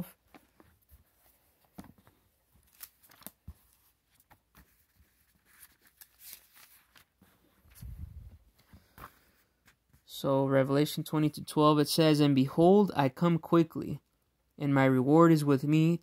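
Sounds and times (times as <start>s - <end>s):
thin pages being leafed through: 0.2s - 10.0s.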